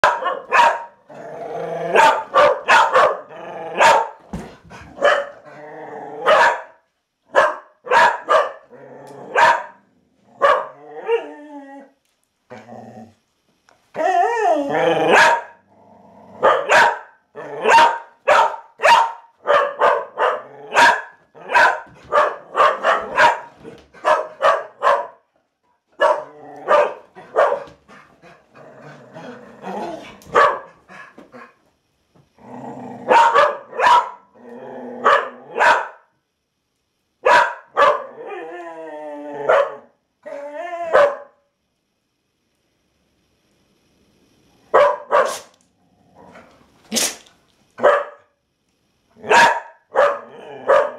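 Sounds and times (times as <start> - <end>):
dog barking: 0.0 - 1.0, 1.9 - 4.2, 5.0 - 5.3, 6.2 - 8.6, 9.3 - 9.8, 10.4 - 10.8, 15.1 - 15.6, 16.4 - 25.2, 26.0 - 27.7, 30.3 - 30.7, 33.1 - 34.3, 35.0 - 36.1, 37.2 - 38.1, 39.5 - 39.9, 40.9 - 41.4, 44.7 - 45.5, 47.8 - 48.3, 49.2 - 50.9.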